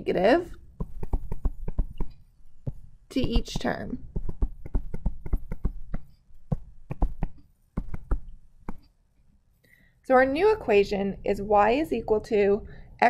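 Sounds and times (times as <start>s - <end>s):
stylus tapping on tablet screen: 0.7s - 8.9s.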